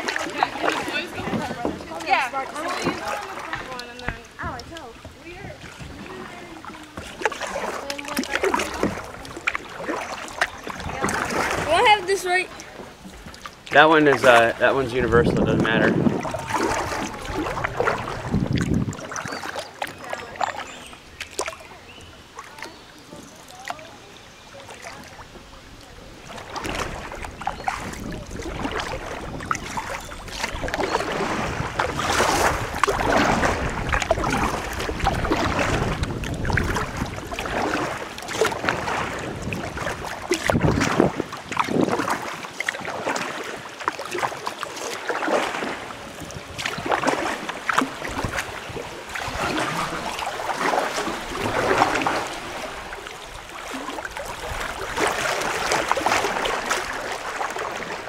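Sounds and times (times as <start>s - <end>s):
paddle splashing in water: 0.0s - 58.0s
water swishing along hull: 0.0s - 58.0s
wind rumble on microphone: 2.7s - 7.2s, 14.6s - 19.4s, 25.2s - 43.0s, 46.0s - 58.0s.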